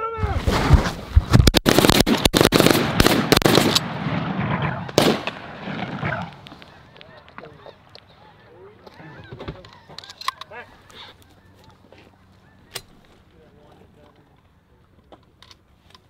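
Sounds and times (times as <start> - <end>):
shotgun blasts: 1.3 - 6.3
geese honking: 4.5 - 13.1.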